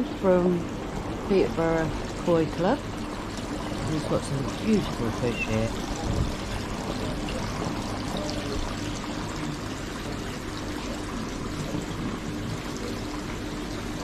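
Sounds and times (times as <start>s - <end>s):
water pouring into pond: 0.7s - 14.0s.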